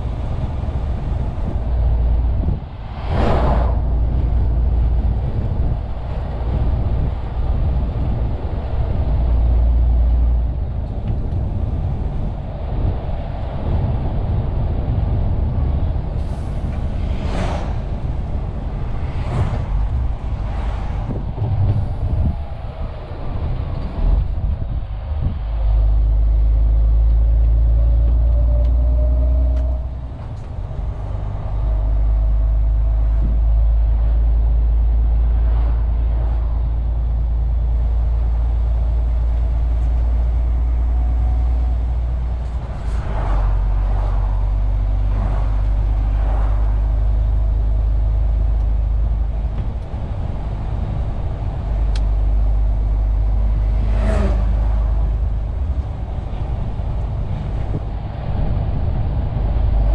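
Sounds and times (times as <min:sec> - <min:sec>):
lorry diesel engine drone: 0:00.0 - 0:59.9.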